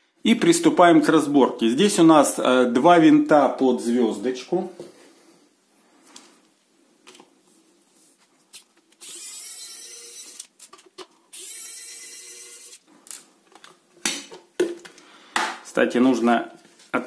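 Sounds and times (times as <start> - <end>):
precision screwdriver turning screws: 9.0 - 10.5.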